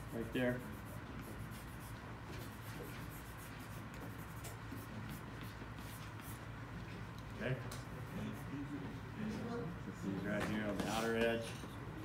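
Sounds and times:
pencil scratching on paper: 0:00.0 - 0:06.4
low steady hum: 0:00.0 - 0:12.0.

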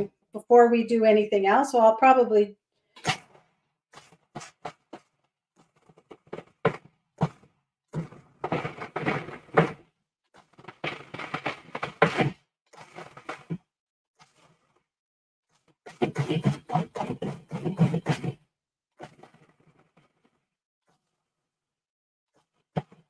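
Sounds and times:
food processor chopping nuts: 0:08.0 - 0:09.8, 0:10.4 - 0:13.6, 0:15.9 - 0:18.3.

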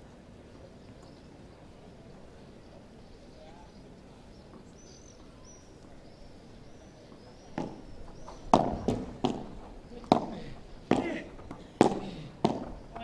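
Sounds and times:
faint hush of outdoor crowd: 0:00.0 - 0:13.0
padel ball struck by rackets: 0:07.6 - 0:12.8.

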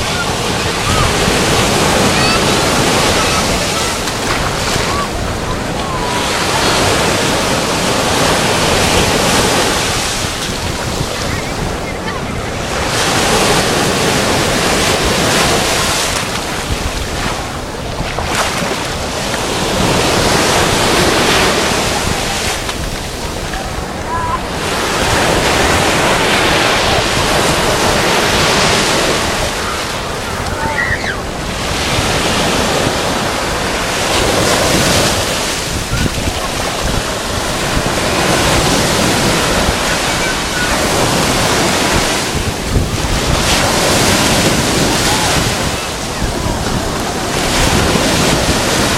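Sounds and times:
small surf washing over sand: 0:00.0 - 0:48.9
wind buffeting microphone: 0:00.0 - 0:48.9.

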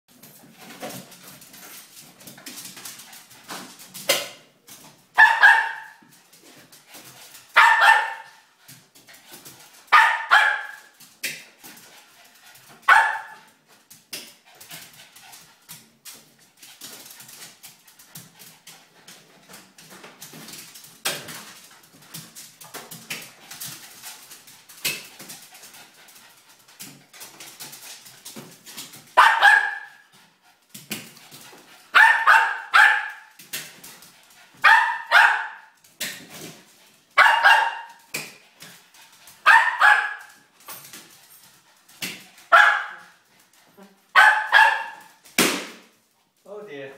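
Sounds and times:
dog barking: 0:05.2 - 0:06.0, 0:07.6 - 0:08.4, 0:09.9 - 0:10.9, 0:12.9 - 0:13.4, 0:29.2 - 0:30.0, 0:32.0 - 0:33.3, 0:34.6 - 0:35.8, 0:37.2 - 0:38.0, 0:39.5 - 0:40.3, 0:42.5 - 0:43.1, 0:44.1 - 0:45.0.

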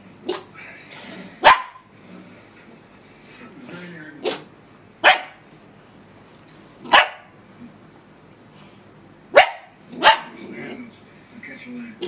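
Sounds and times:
puppy barking: 0:01.4 - 0:01.9, 0:05.0 - 0:05.4, 0:06.8 - 0:07.3, 0:09.3 - 0:10.4.

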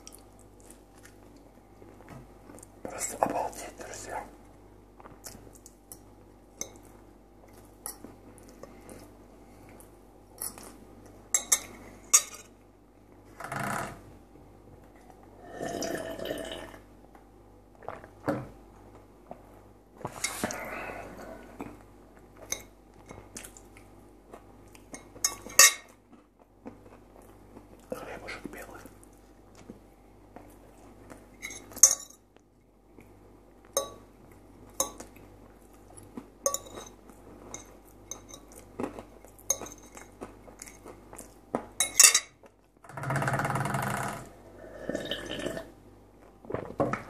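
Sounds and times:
chewing food: 0:00.0 - 0:02.8, 0:21.3 - 0:28.0, 0:28.6 - 0:41.8.

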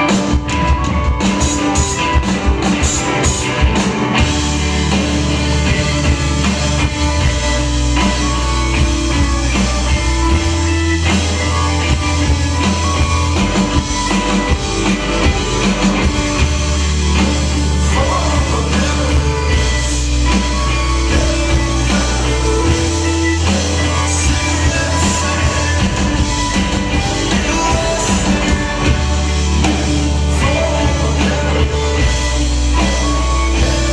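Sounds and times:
bass guitar: 0:00.0 - 0:33.9
drums: 0:00.0 - 0:33.9
electric guitar: 0:00.0 - 0:33.9
keyboards: 0:00.0 - 0:33.9
person singing into a microphone: 0:17.6 - 0:29.2, 0:30.2 - 0:33.9.

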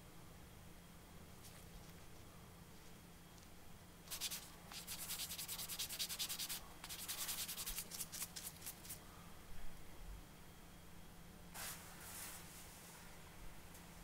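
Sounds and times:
sanding sponge rubbing plastic: 0:04.1 - 0:08.8.

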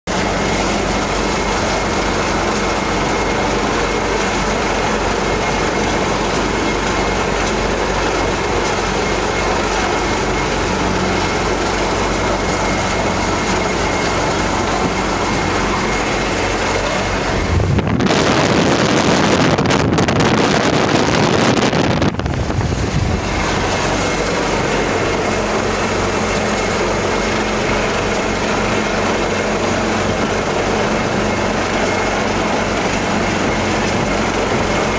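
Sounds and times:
helicopter rotor and turbine: 0:00.1 - 0:34.9
gust of wind: 0:17.2 - 0:24.0.

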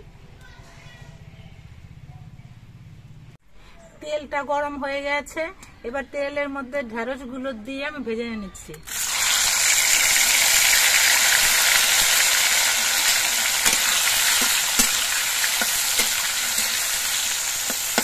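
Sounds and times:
okra sizzling in hot oil: 0:08.8 - 0:18.0
metal spatula clicking on pan: 0:13.0 - 0:18.0.

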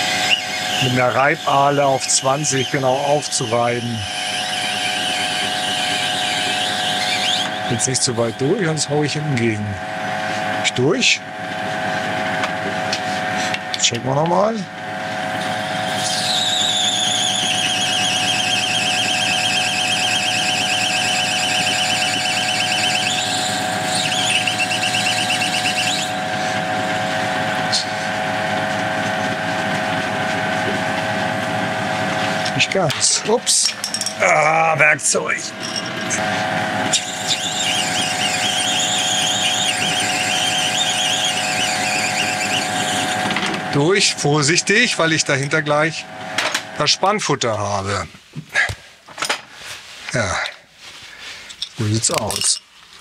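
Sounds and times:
drill screeching into plastic: 0:00.0 - 0:08.8, 0:15.4 - 0:26.6, 0:35.4 - 0:44.0
lathe humming: 0:00.0 - 0:10.7, 0:14.8 - 0:46.8.

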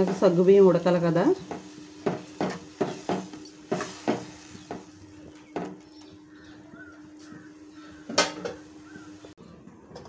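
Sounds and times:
ladle knocking on pan: 0:01.4 - 0:05.8.

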